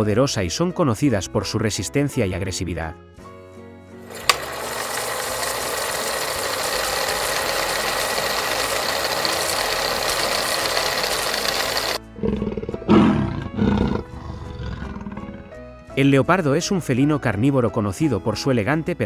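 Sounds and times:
big cat growling roars: 12.2s - 15.7s.

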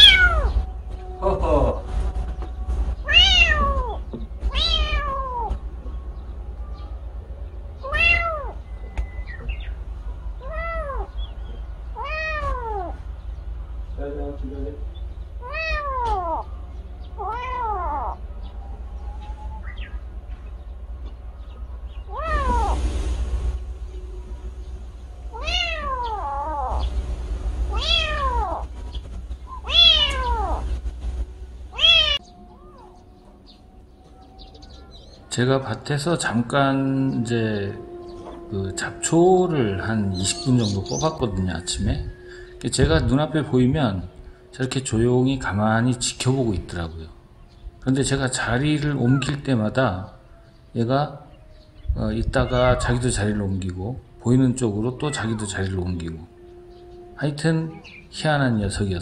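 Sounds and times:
kitten meowing: 0.0s - 0.6s, 3.0s - 5.6s, 7.8s - 8.6s, 10.4s - 11.2s, 11.9s - 13.0s, 15.4s - 16.5s, 17.2s - 18.2s, 22.1s - 22.8s, 25.3s - 26.9s, 27.7s - 28.7s, 29.5s - 30.7s, 31.7s - 33.2s, 52.2s - 53.0s.

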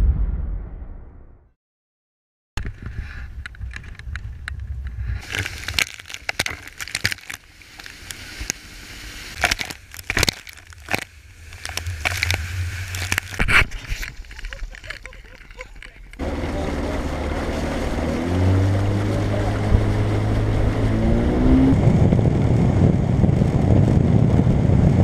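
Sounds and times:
low rumble: 0.0s - 1.5s, 3.0s - 25.0s
water splashing and sloshing: 5.2s - 21.7s.

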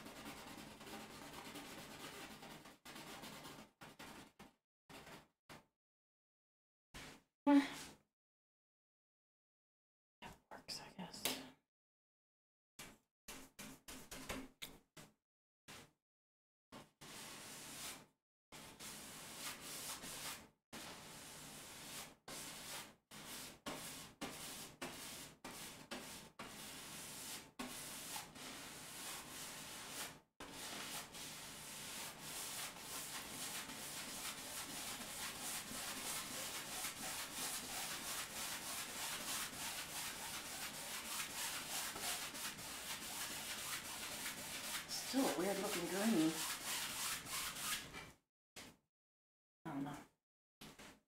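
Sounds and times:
paintbrush scrubbing canvas: 0.0s - 4.4s, 16.8s - 47.9s.

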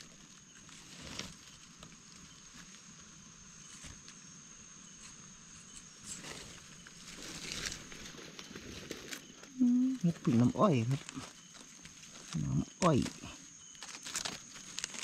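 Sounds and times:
high-pitched insect drone: 0.0s - 15.0s
scraping and rustling of soil: 0.0s - 15.0s.

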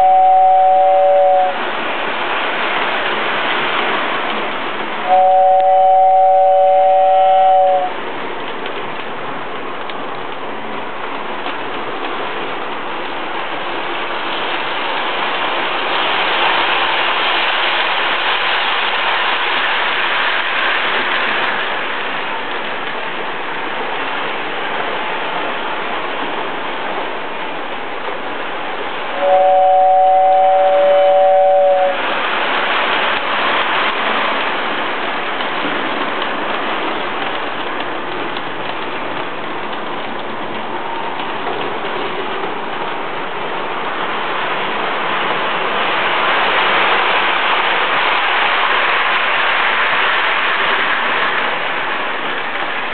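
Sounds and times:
two-note train horn: 0.0s - 1.6s, 5.0s - 8.0s, 29.2s - 32.0s
toy train rumbling on track: 0.0s - 52.9s.

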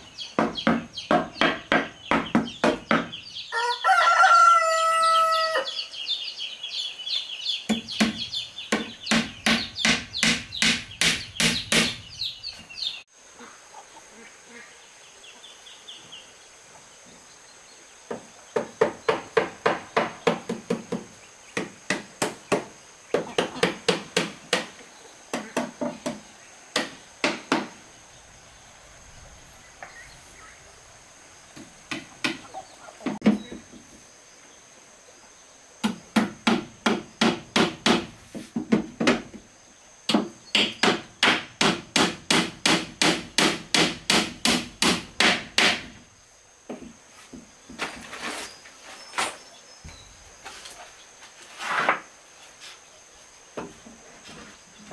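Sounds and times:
hammer striking nails into wood: 7.7s - 12.0s, 35.8s - 38.1s, 40.1s - 46.0s.

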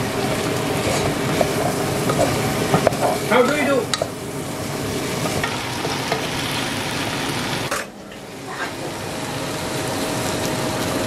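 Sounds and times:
chicken sizzling in a pot: 0.0s - 11.0s
wooden spoon scraping a pot: 0.8s - 3.7s.

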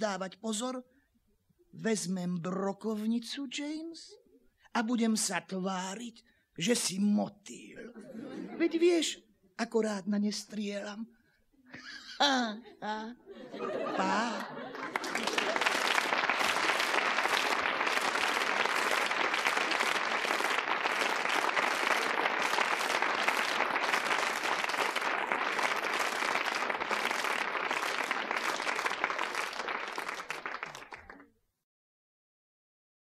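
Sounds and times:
audience applauding: 13.6s - 31.3s.

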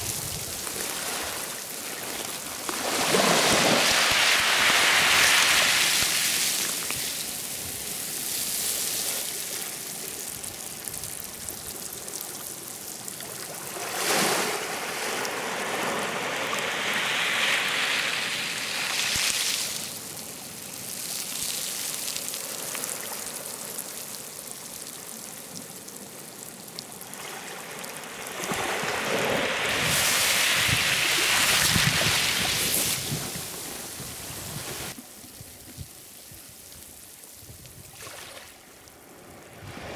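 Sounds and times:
sea waves breaking: 0.0s - 7.4s, 13.4s - 19.8s, 27.1s - 35.0s.

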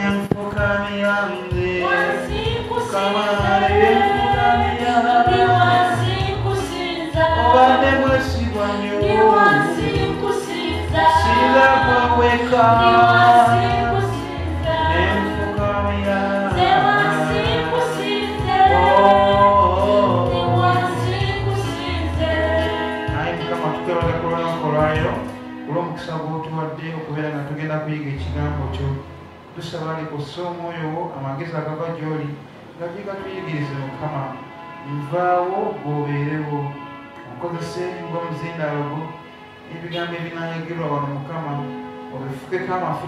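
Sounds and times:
backing music with bass and beat: 0.0s - 25.7s
gospel singing: 0.0s - 30.0s.

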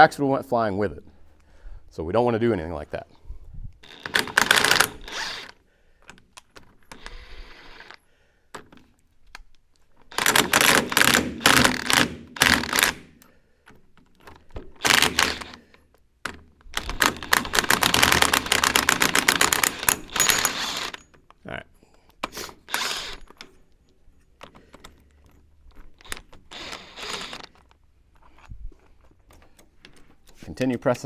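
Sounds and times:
impact wrench rattling: 3.8s - 8.8s, 9.9s - 15.6s, 16.2s - 21.4s, 22.2s - 31.0s.

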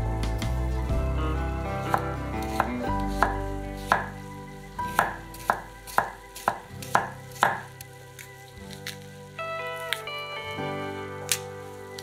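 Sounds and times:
knife chopping on wooden board: 1.9s - 4.1s, 4.9s - 7.7s.

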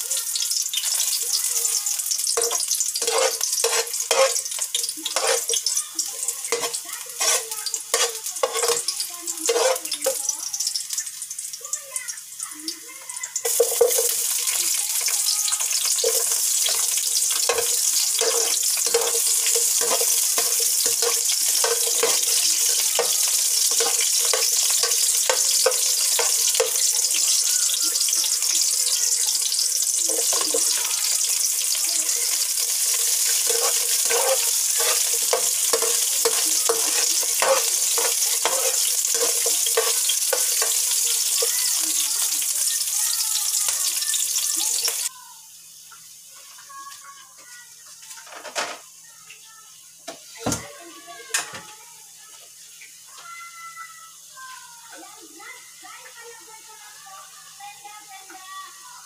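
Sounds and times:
vegetables sizzling in hot oil: 0.0s - 59.0s
spoon scraping metal pan: 0.8s - 10.2s, 13.4s - 42.9s.

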